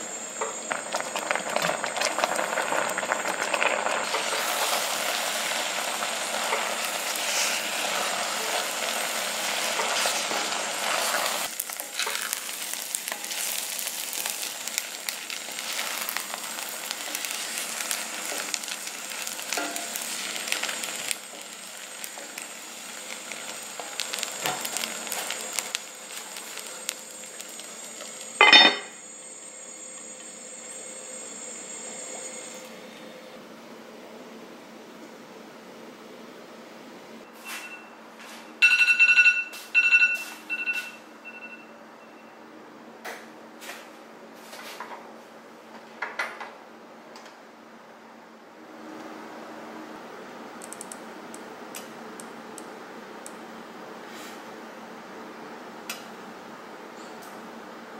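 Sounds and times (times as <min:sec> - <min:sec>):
rice and water boiling: 0:00.0 - 0:34.6
lid clanking on pot: 0:28.4 - 0:29.0.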